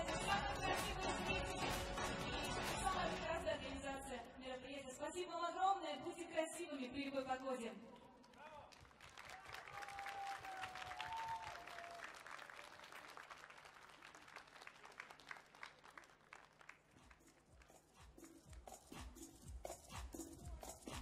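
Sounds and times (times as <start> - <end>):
music: 0.0 - 5.0, 16.7 - 21.0
audience applauding: 8.2 - 17.7.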